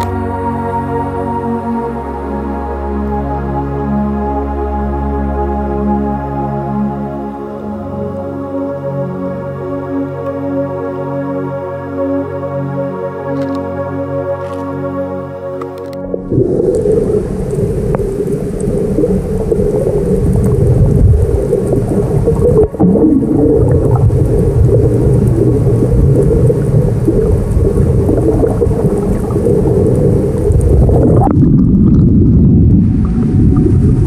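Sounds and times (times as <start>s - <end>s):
low underwater water noise: 0.0s - 11.1s, 15.6s - 34.0s
faint hiss: 16.3s - 31.1s.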